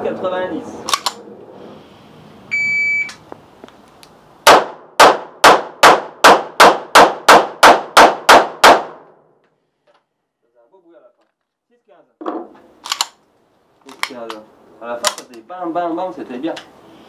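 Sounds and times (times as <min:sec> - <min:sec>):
short high timer beep: 0:02.5 - 0:03.1.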